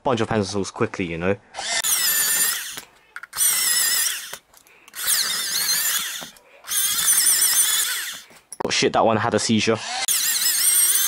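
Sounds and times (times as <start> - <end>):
electric pencil sharpener whining: 1.6 - 8.3, 9.9 - 11.0.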